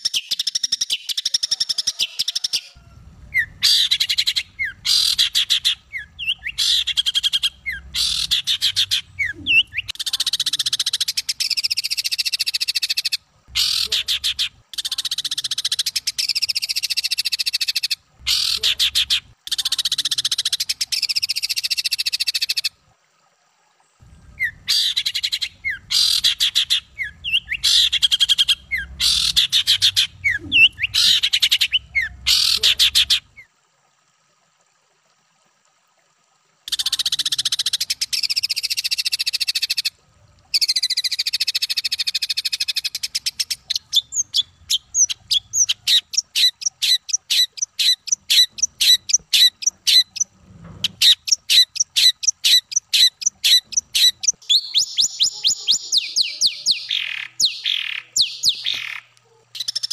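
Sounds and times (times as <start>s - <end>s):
songbird rattling trills: 24.0s - 33.4s, 42.0s - 55.8s.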